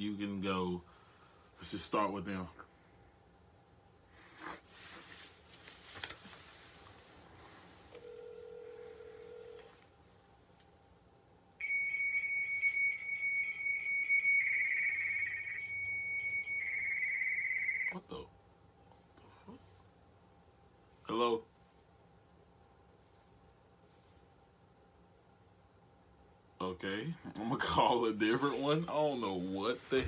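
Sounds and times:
phone ringback tone: 0:08.0 - 0:09.8, 0:11.6 - 0:18.0
high steady electronic tone: 0:11.6 - 0:18.0.

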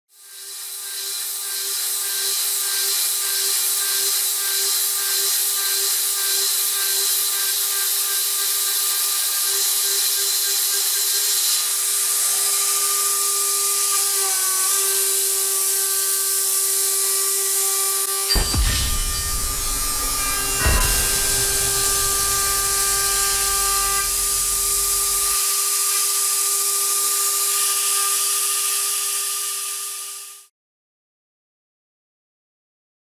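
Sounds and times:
milling machine spindle whine: 0:18.3 - 0:25.4
deep thump: 0:18.4 - 0:25.4.

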